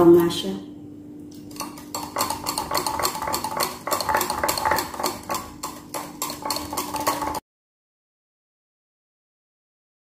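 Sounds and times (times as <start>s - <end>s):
whisk clinking against glass bowl: 1.5s - 7.4s.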